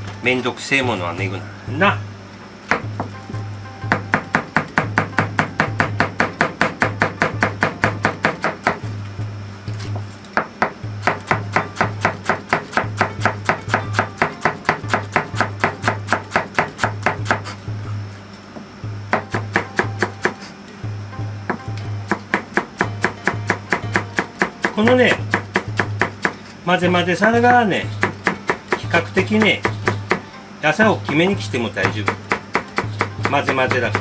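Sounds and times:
knife chopping on cutting board: 3.9 - 8.8, 9.8 - 17.6, 19.1 - 20.5, 21.5 - 26.4, 27.4 - 30.2, 30.9 - 34.0.

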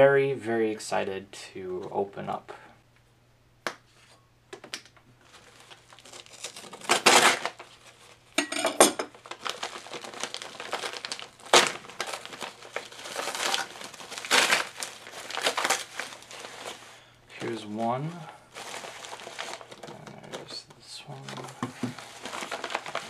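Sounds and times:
paper crinkling and tearing: 5.2 - 8.3, 9.1 - 23.0.

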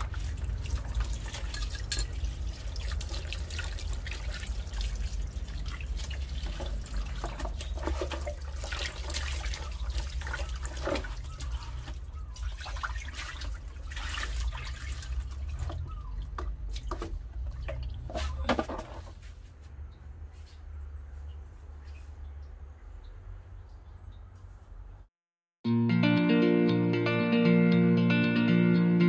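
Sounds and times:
water pouring out of basin: 0.0 - 15.8
hands sloshing water: 0.0 - 18.4
hose water splashing into basin: 0.0 - 18.6.

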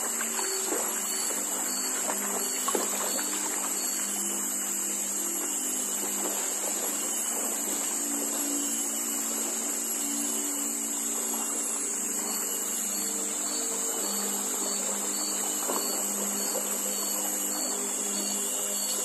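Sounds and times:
boat engine humming: 0.0 - 19.0
high-pitched hiss: 0.0 - 19.0.

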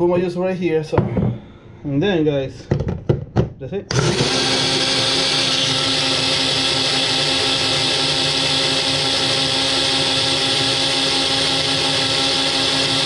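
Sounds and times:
blender motor whirring: 3.9 - 13.0.

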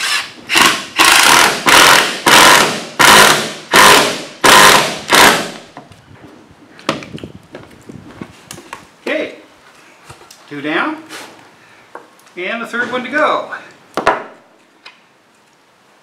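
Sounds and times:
cordless drill driving screw: 0.0 - 5.4.

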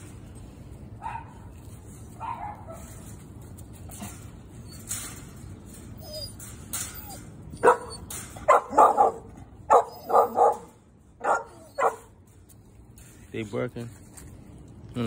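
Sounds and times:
dogs barking sharply: 1.0 - 1.5, 2.2 - 3.0, 7.6 - 12.2
dog whining: 5.9 - 10.7, 11.3 - 12.1.

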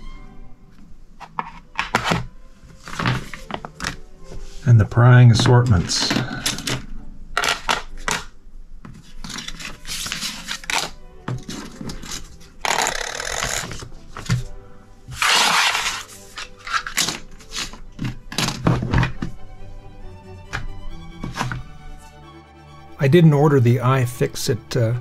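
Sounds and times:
paper packet rustling: 8.9 - 14.5, 15.1 - 19.2.

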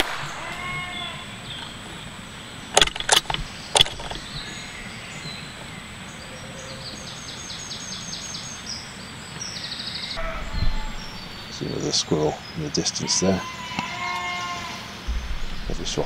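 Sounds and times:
woodland birdsong: 0.0 - 16.0
sharp clicks and knocks: 2.7 - 4.5
fast repeated bird call: 10.2 - 11.7.

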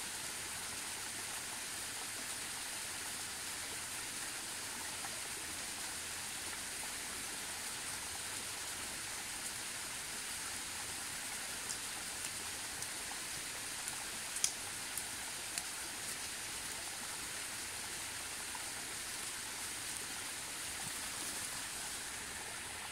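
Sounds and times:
outdoor hiss: 0.0 - 22.9.

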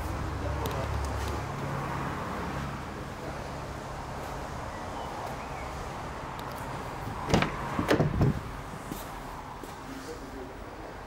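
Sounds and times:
background noise: 0.0 - 11.0
car door clunks opening: 7.2 - 8.5.

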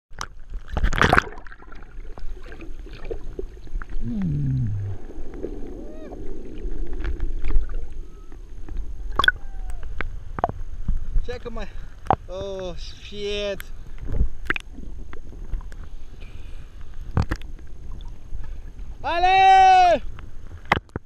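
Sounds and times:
low underwater hum: 0.2 - 19.0
camera splashing into water: 0.7 - 1.7
short falling tone: 4.0 - 5.1
underwater clicks and pops: 9.1 - 10.6, 14.1 - 14.8, 17.1 - 17.5, 20.7 - 21.0.

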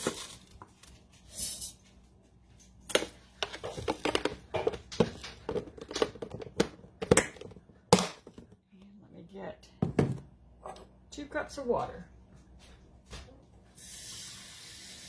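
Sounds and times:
plastic tub clicks and knocks: 3.4 - 8.6.

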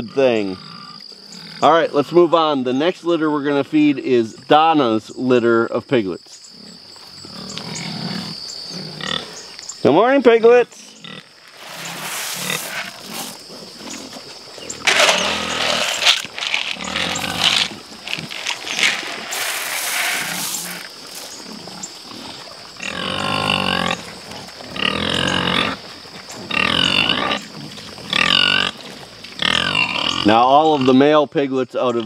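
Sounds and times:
pigs squealing: 10.8 - 25.9, 26.5 - 28.8, 29.4 - 31.0.

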